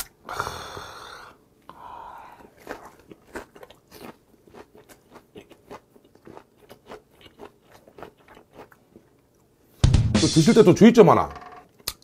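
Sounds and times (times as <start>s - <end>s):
wet crunchy chewing: 2.4s - 9.4s.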